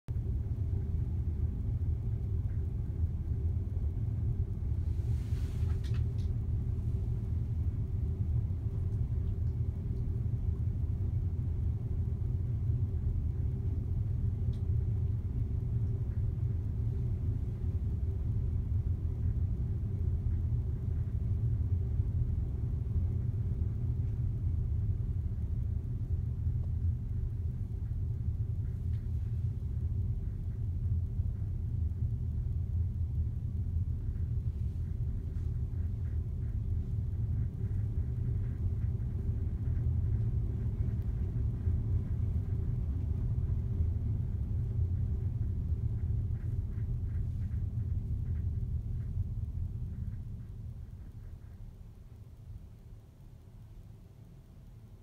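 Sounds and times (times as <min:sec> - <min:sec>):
faint hiss: 0:04.6 - 0:08.0.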